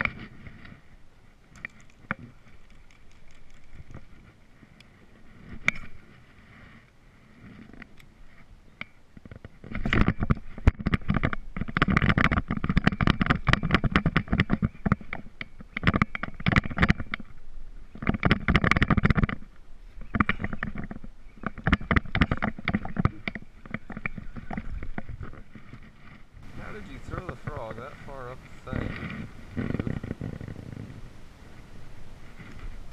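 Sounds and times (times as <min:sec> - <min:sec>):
sleeve rubbing against camera: 0:23.8 - 0:32.9.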